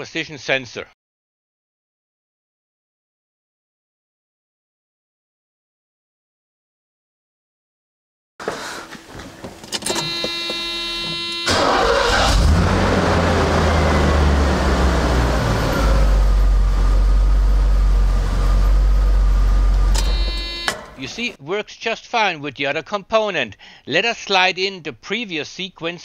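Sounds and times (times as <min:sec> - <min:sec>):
engine cranking whine: 0:09.5 - 0:21.4
engine idling: 0:09.9 - 0:21.3.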